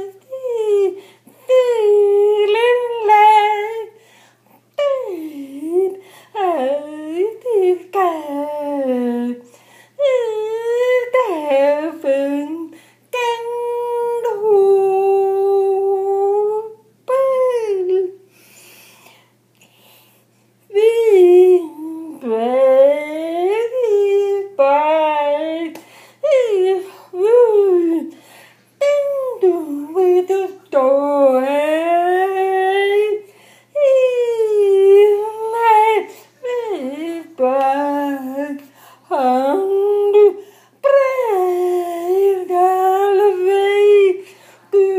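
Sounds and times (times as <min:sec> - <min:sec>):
woman singing wordless vowels: 0:00.0 - 0:04.0, 0:04.8 - 0:18.2, 0:20.7 - 0:28.2, 0:28.8 - 0:44.9
woman singing held notes: 0:28.8 - 0:44.9.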